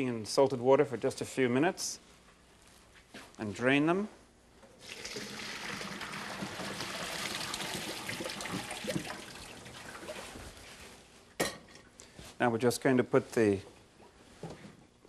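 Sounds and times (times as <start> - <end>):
water pouring into a colander: 4.8 - 10.4.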